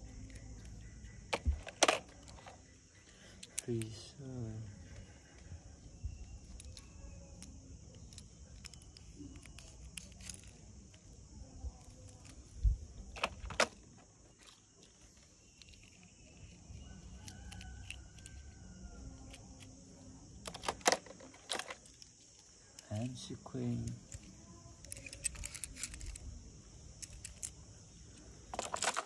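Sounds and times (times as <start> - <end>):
toy cars clattering on plastic case: 1.3 - 2.6, 13.1 - 14.0, 20.4 - 22.0, 28.5 - 29.0
sharp plastic clacks: 28.5 - 29.0.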